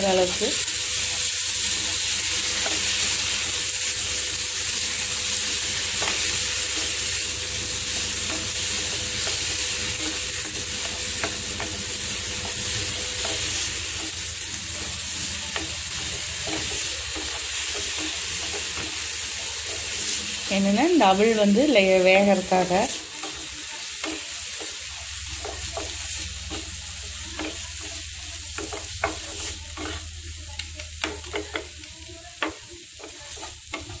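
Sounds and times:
food sizzling in a pan: 0.0 - 34.0
wooden spatula stirring and scraping: 7.9 - 34.0.

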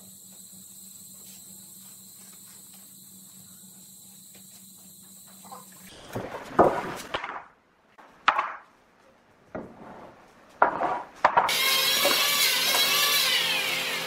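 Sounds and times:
wooden boards knocking and scraping: 6.0 - 7.4, 9.5 - 12.9.

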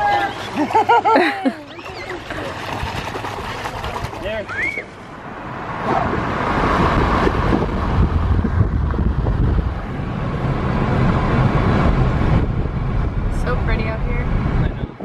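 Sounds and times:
car road and wind noise: 3.8 - 15.0.

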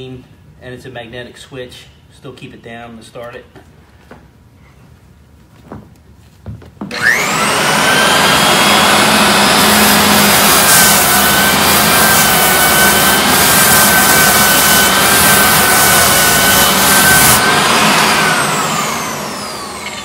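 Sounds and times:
floor edger motor whine: 6.9 - 20.0
sanding disc cutting floor: 6.9 - 20.0.

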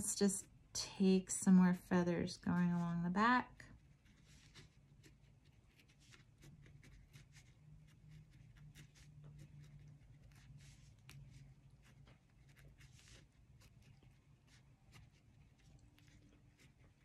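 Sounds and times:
marker scratching on paper: 3.8 - 17.0.

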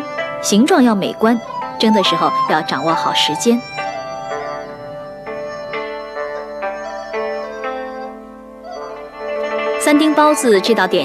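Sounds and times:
slow instrumental melody: 0.0 - 11.0.

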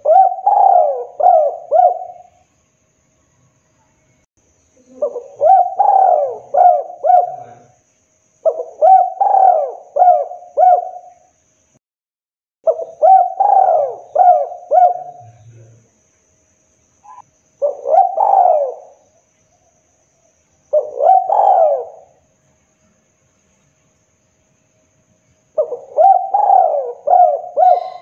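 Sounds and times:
dove cooing: 0.0 - 2.4, 4.8 - 7.8, 8.4 - 11.2, 12.7 - 15.4, 17.1 - 19.0, 20.7 - 22.2, 25.6 - 28.0.

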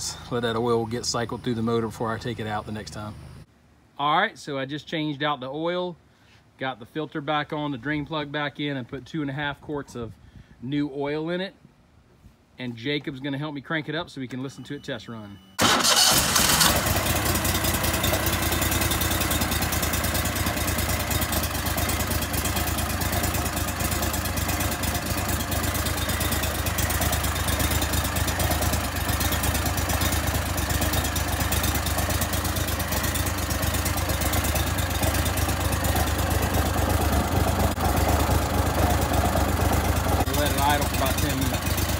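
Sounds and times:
boat motor idling: 16.1 - 41.9.

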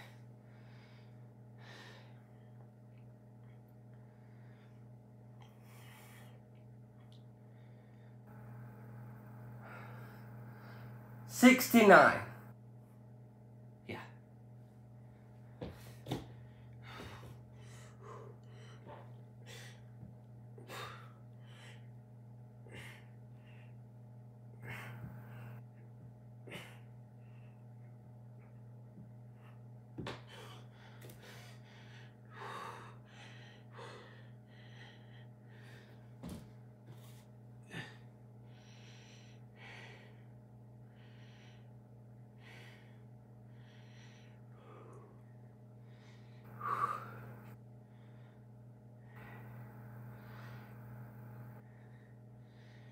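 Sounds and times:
man breathing hard: 0.0 - 2.6, 15.2 - 20.0, 24.6 - 25.6, 30.2 - 36.3, 37.6 - 52.9
steady low hum: 0.0 - 52.9.

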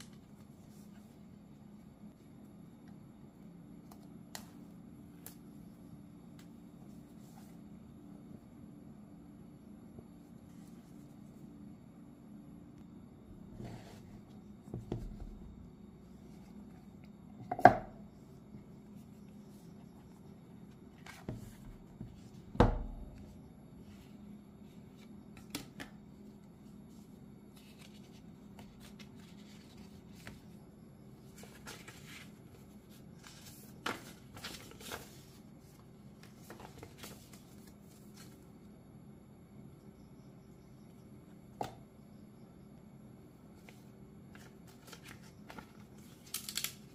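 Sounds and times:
faint steady hum: 0.0 - 46.9
paper rustling: 26.9 - 30.5, 31.2 - 38.4, 43.6 - 46.8.

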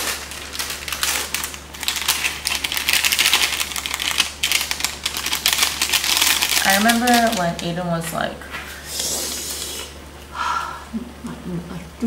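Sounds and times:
dried flakes shaken into pot: 0.0 - 7.7
plastic sachet crinkling: 0.0 - 7.9.

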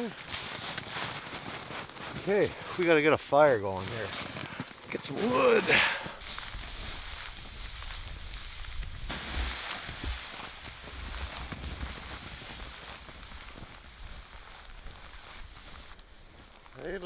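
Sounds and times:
footsteps crunching in snow: 0.0 - 17.0
plastic sled sliding on snow: 0.0 - 17.0
outdoor hiss: 4.9 - 17.0.

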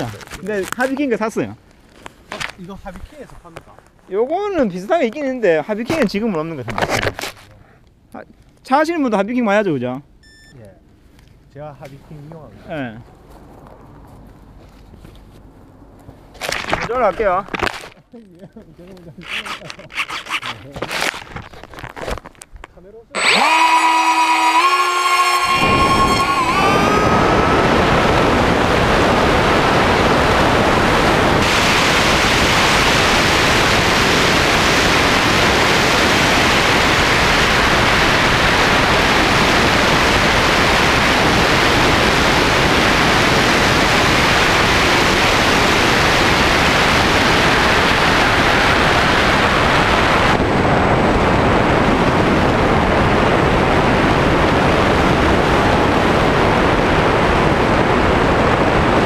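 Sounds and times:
electric motor and propeller roar: 23.2 - 59.0.

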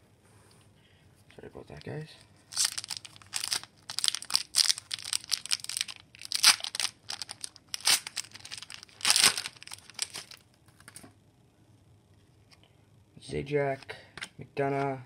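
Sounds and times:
foil wrapper crinkling and tearing: 2.5 - 11.0.

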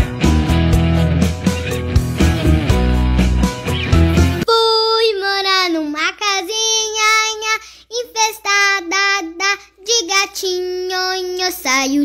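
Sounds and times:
guitar music: 0.0 - 4.5
child singing: 4.5 - 12.0.

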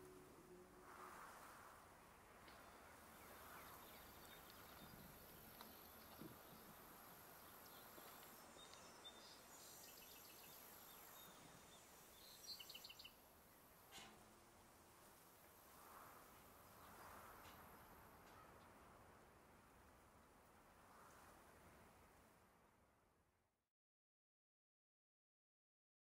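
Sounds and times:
steady high hiss: 0.0 - 18.2
bird chirps: 7.4 - 13.2.

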